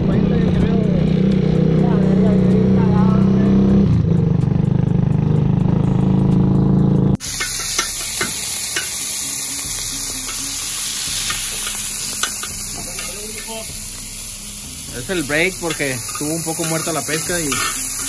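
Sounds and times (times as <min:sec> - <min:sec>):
food sizzling in a frying pan: 0:07.2 - 0:18.0.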